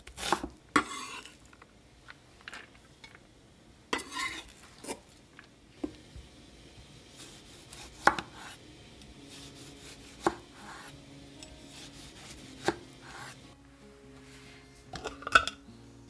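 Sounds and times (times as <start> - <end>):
knife scraping on board: 0.2 - 1.4, 4.0 - 5.0, 11.7 - 13.4
knife chopping on wooden board: 7.2 - 8.6, 9.4 - 10.9, 11.7 - 13.4.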